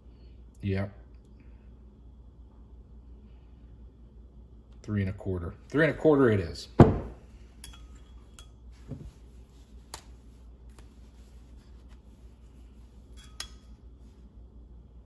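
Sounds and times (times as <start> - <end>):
soft thump: 6.8 - 7.2.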